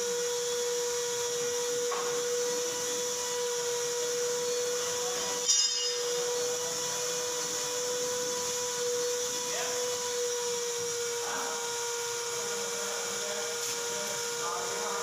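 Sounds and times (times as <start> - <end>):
steady mechanical hum: 0.0 - 15.0
sharp metallic clank: 5.4 - 6.1.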